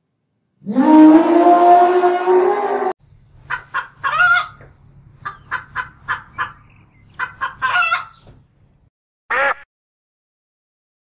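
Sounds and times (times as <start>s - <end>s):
hens clucking and cackling: 3.5s - 8.2s.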